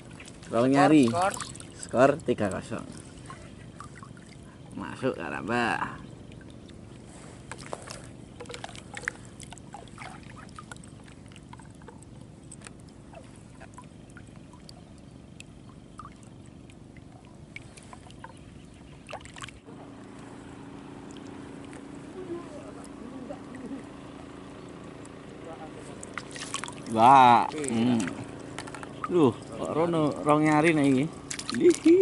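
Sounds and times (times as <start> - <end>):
water splashing and dripping: 0.0 - 4.5, 7.5 - 18.4, 19.0 - 19.7, 26.0 - 32.0
low hum: 0.0 - 32.0.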